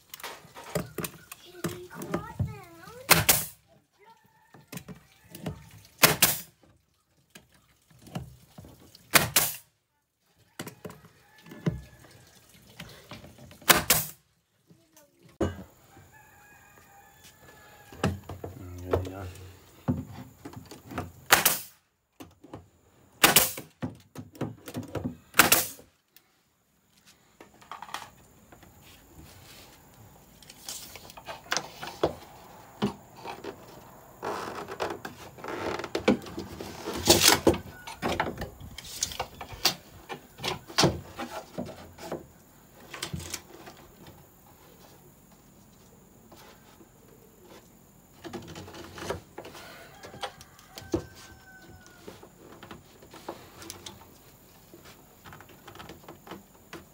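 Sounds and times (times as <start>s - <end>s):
nail gun firing: 3.1s - 3.6s, 6.0s - 6.5s, 9.1s - 9.6s, 13.7s - 14.2s, 21.3s - 21.8s, 23.2s - 23.7s, 25.4s - 25.8s.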